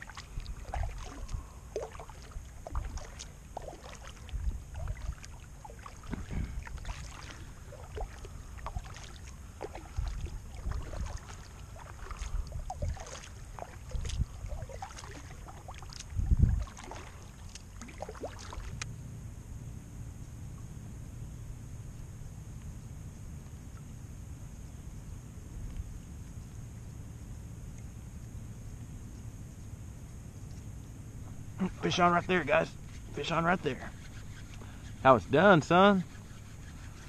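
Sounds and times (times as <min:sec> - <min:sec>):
paddle splashing in water: 0:00.0 - 0:18.9.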